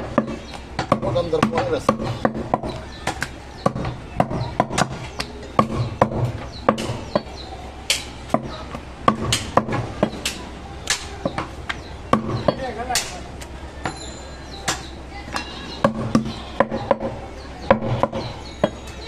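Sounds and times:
knife chopping meat on wood: 0.0s - 7.3s.

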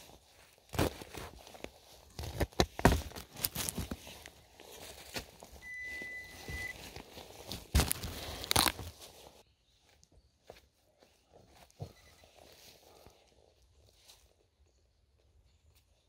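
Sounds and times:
shovel digging into soil: 0.6s - 4.0s
high beep: 5.6s - 6.8s.

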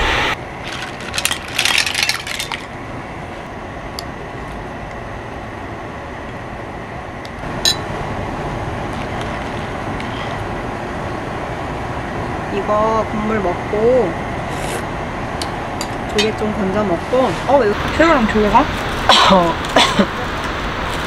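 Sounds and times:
soup boiling in a pot: 17.8s - 21.0s.

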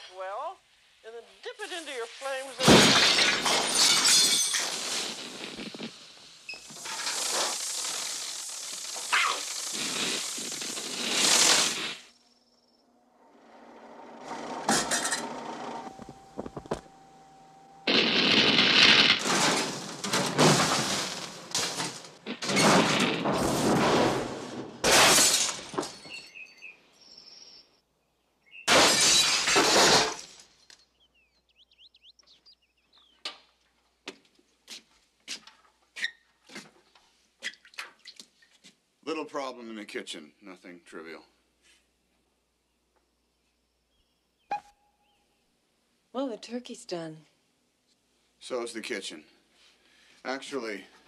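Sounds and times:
glass shattering: 2.6s - 5.3s, 17.9s - 24.0s, 24.8s - 26.5s, 28.7s - 30.6s
loud crashes: 17.9s - 26.1s.

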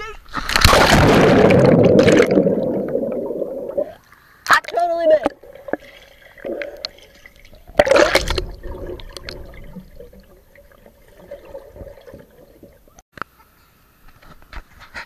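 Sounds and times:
underwater splash and bubbles: 0.4s - 4.0s, 5.2s - 13.0s.

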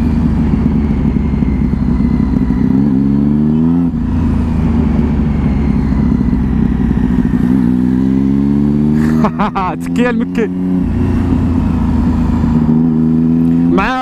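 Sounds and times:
motorcycle engine accelerating: 0.0s - 14.0s.

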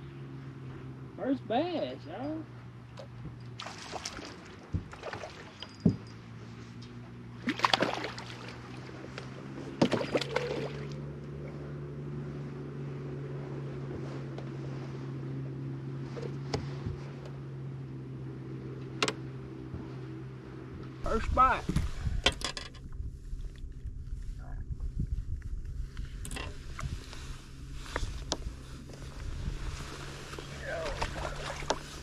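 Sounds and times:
electric trolling motor humming: 0.0s - 32.0s
fish splashing at the surface: 3.6s - 5.6s, 7.4s - 8.8s, 9.8s - 11.0s.

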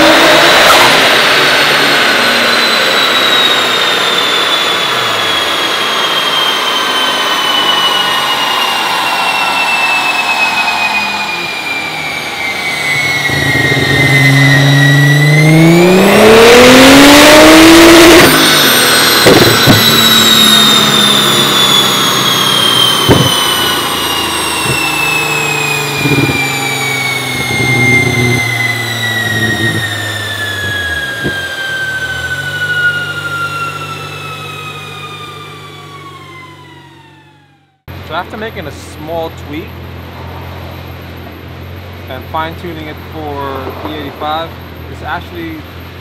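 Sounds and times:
car engine at full throttle: 0.0s - 46.0s
drivetrain whine coasting down: 0.0s - 46.0s
sharp exhaust pops: 19.0s - 20.4s, 22.9s - 31.6s.

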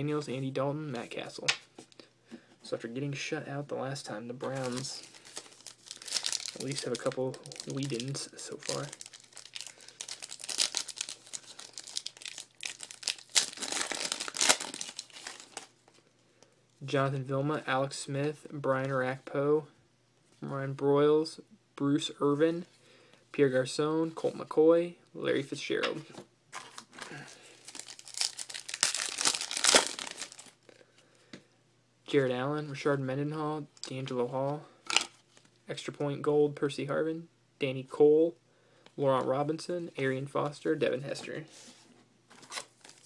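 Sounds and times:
foil wrapper crinkling and tearing: 4.5s - 15.7s, 26.6s - 30.6s.

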